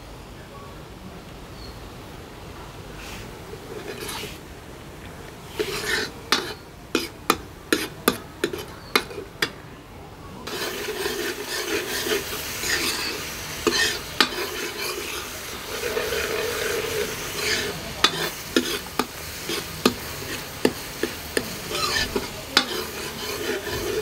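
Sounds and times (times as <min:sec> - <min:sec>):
ladle scraping pan: 0:03.0 - 0:04.4, 0:05.4 - 0:09.6, 0:10.5 - 0:24.0
paste sizzling in oil: 0:03.0 - 0:04.4, 0:05.4 - 0:09.6, 0:10.4 - 0:24.0
ladle clinking against pan: 0:05.6 - 0:09.6, 0:10.5 - 0:20.0, 0:20.6 - 0:24.0.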